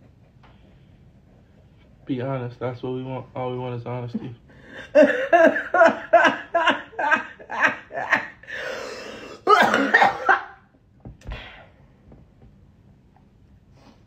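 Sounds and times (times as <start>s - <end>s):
low room noise: 0.0s - 14.0s
person coughing: 9.2s - 10.6s.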